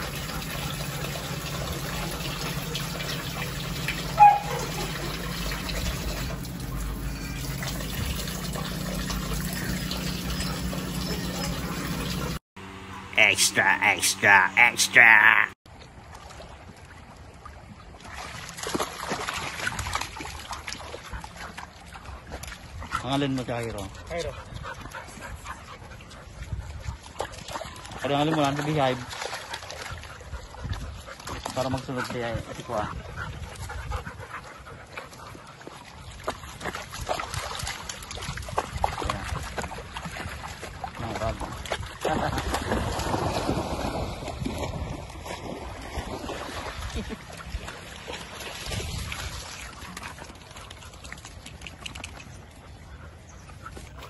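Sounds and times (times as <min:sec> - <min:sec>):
dogs splashing in water: 0:00.0 - 0:12.4, 0:15.9 - 0:54.0
water washing: 0:00.0 - 0:12.4.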